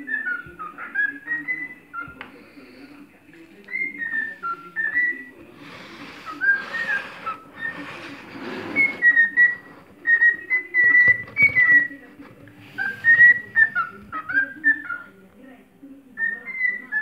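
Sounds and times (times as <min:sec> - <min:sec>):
cockatiel whistling: 0:00.0 - 0:02.2, 0:03.7 - 0:12.0, 0:12.6 - 0:15.1, 0:16.2 - 0:17.0.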